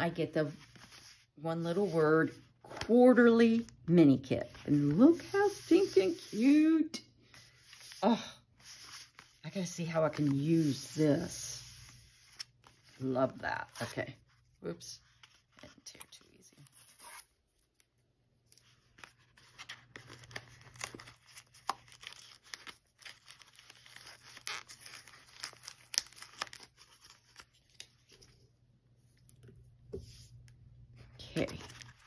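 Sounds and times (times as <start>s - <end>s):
paper envelope tearing: 19.0s - 28.1s.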